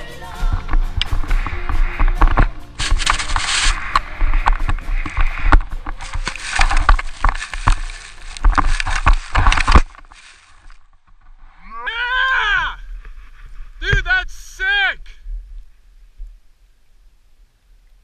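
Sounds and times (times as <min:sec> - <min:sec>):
rush of snow and wind: 0:00.2 - 0:18.0
person speaking: 0:13.8 - 0:15.2.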